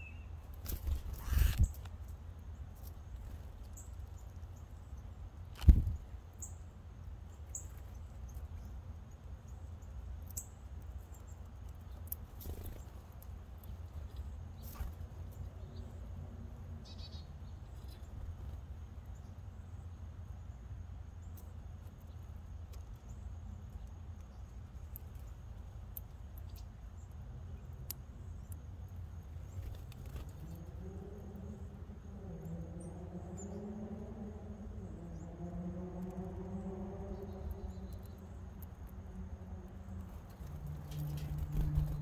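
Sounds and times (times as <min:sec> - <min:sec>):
faint high insect drone: 0:00.0 - 0:42.0.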